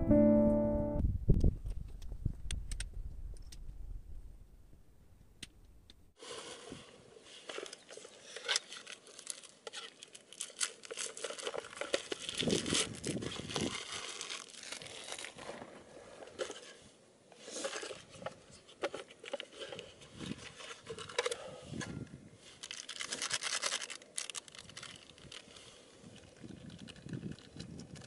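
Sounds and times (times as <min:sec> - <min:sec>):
plastic wrap tearing and crinkling: 0:08.2 - 0:15.6, 0:22.5 - 0:25.6.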